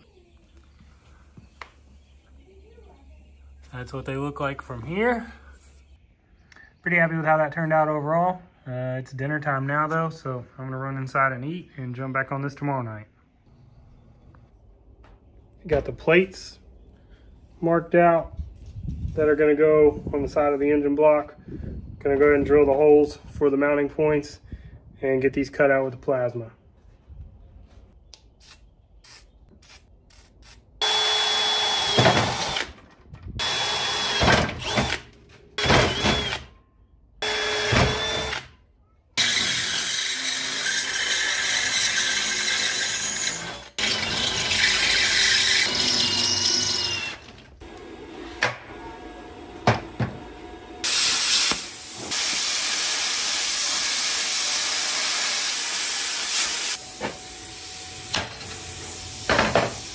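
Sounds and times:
power drill boring steel: 30.8s - 32.7s, 33.4s - 36.5s, 37.2s - 38.5s, 39.2s - 48.1s, 50.8s - 59.9s
plasma cutter hissing: 50.8s - 59.9s.

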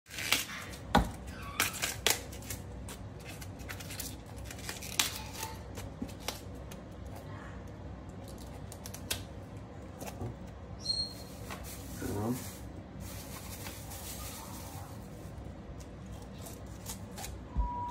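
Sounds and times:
cauliflower leaves snapping: 0.1s - 0.9s, 1.6s - 6.7s, 8.2s - 9.4s.

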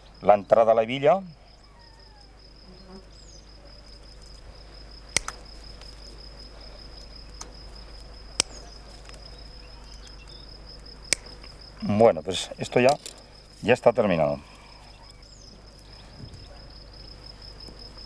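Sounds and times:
high insect chirring: 0.0s - 18.0s
punch pliers clicking: 5.2s - 5.4s.

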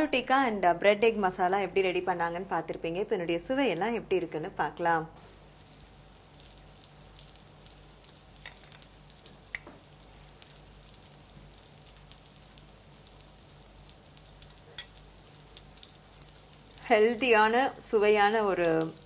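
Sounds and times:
faint steady hiss: 0.0s - 19.0s
spoon clicking against plate: 14.4s - 15.0s.

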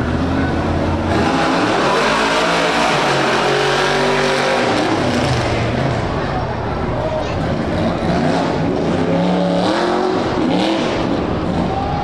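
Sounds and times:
truck engine revving hard: 0.0s - 6.3s, 7.2s - 12.0s.

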